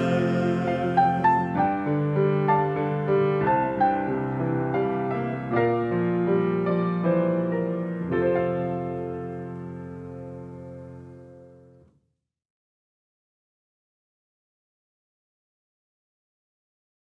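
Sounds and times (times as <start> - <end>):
solo piano playing slowly: 0.0 - 11.9.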